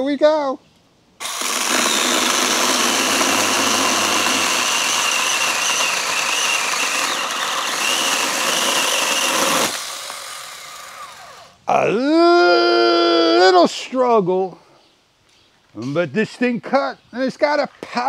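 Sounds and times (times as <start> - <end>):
chainsaw cutting log: 1.2 - 11.6.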